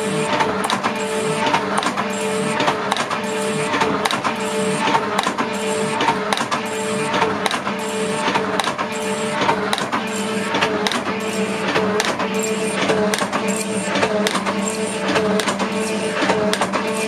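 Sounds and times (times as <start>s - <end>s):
cutting tool chattering: 0.0s - 17.0s
metal shaping machine running: 0.0s - 17.0s
rhythmic clatter: 0.0s - 17.0s.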